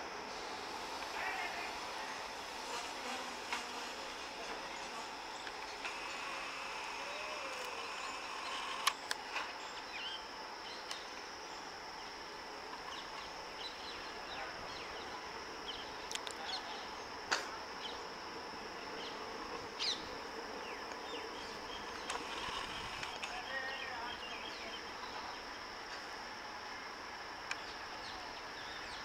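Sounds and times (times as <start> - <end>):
insects droning: 0.0 - 29.0
sharp clicks: 8.4 - 9.5.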